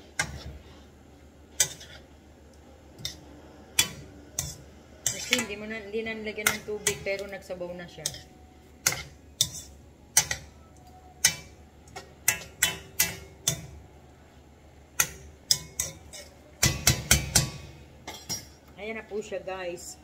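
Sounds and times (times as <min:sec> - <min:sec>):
metal ladle scraping a wok: 0:00.1 - 0:00.8, 0:01.5 - 0:02.2, 0:03.8 - 0:05.7, 0:08.0 - 0:10.4.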